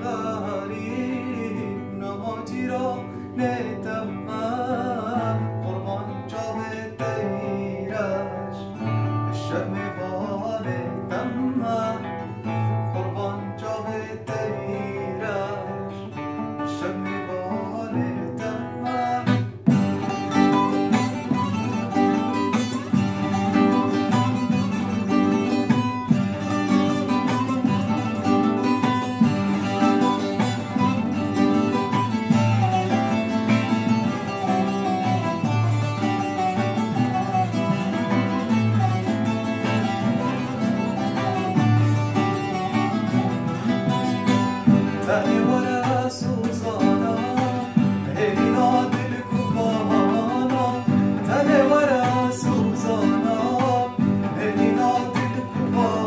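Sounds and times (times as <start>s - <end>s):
man singing: 0.0s - 56.0s
saz and acoustic guitar strumming: 0.0s - 56.0s.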